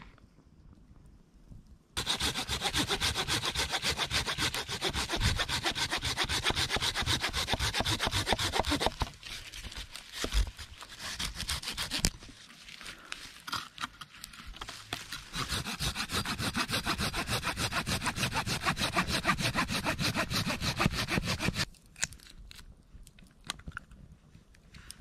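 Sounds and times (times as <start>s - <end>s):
hand saw cutting branch: 2.0s - 12.3s, 15.0s - 21.7s.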